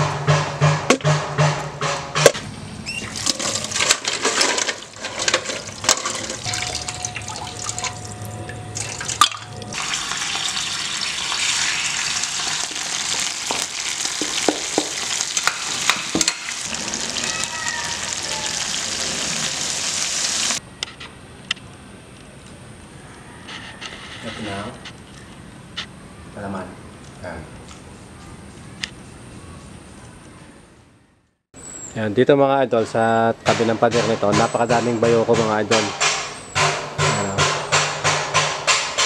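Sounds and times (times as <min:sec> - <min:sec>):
snails sizzling in a pan: 0:09.8 - 0:20.6.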